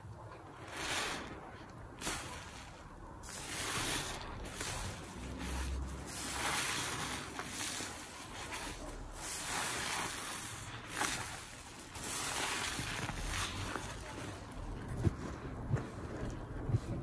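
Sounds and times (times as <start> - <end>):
sponge squelching in suds: 0.4 - 17.0.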